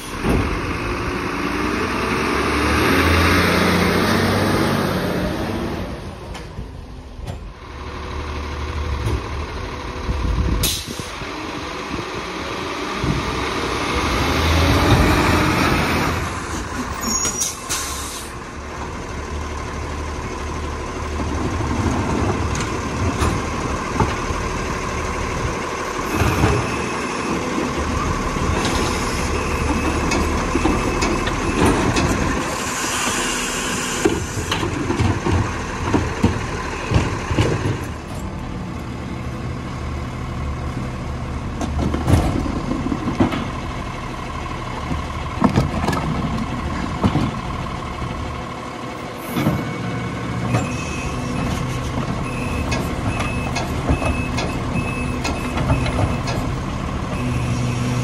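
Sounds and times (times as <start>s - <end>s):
truck engine revving: 0.0s - 6.1s, 11.1s - 38.6s
air brakes hissing: 10.6s - 11.2s, 16.8s - 18.4s, 32.5s - 34.6s.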